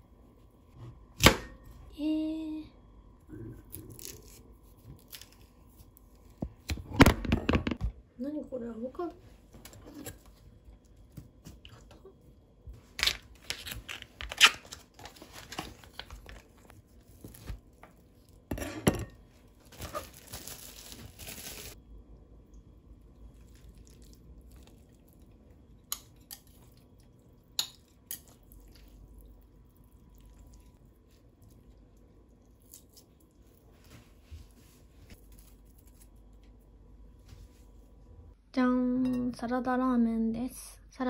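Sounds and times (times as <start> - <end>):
plastic packaging crinkling: 19.6 - 21.8.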